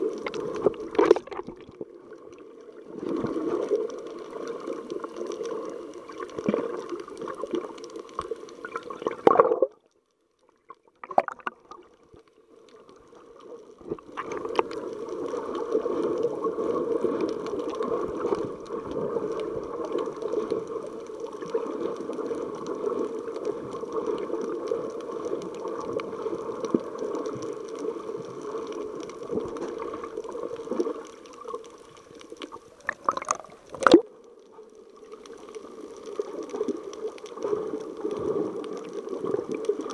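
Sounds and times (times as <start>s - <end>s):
sharp water splashes: 11.0s - 11.8s.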